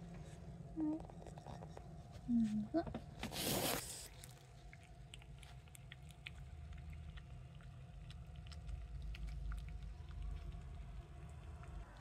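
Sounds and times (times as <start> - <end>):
cat lapping liquid: 3.6 - 12.0.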